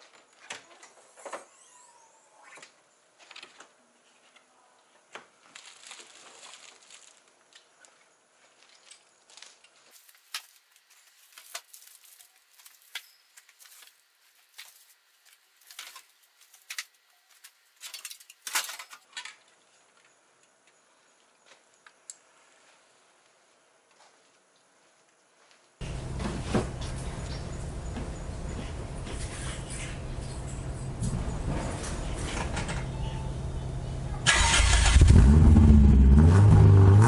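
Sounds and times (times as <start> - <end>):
plastic wrapping crinkling: 5.4 - 7.6, 8.6 - 19.2.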